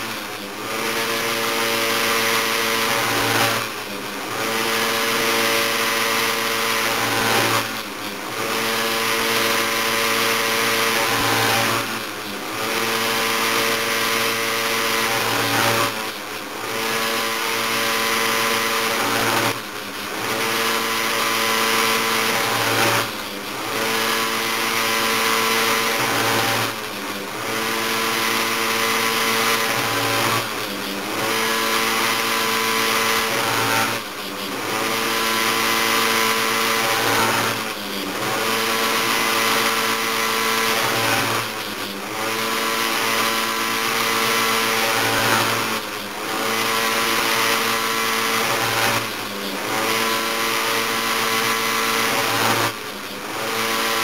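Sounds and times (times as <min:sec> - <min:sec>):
chain grinder motor grinding: 0:00.0 - 0:54.0.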